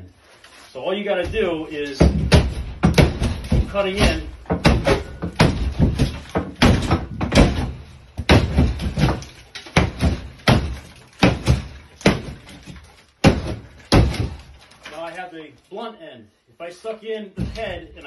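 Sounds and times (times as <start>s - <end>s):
hook chopping into drywall: 2.0s - 14.5s.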